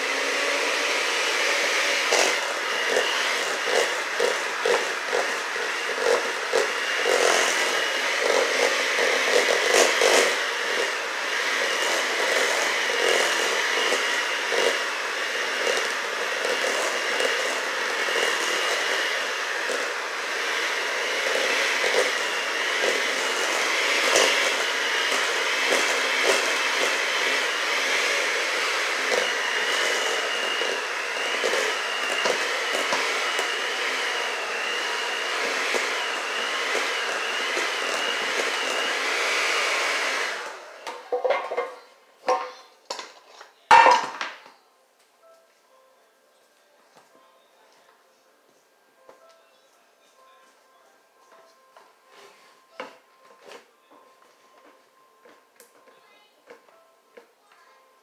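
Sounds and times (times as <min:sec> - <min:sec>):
electric hand mixer whirring: 0:00.0 - 0:41.8
beaters scraping metal bowl: 0:41.0 - 0:42.6.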